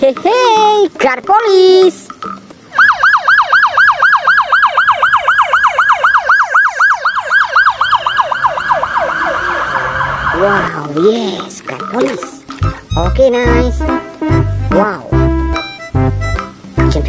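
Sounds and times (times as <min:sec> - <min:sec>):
police siren yelping: 0:02.7 - 0:10.8.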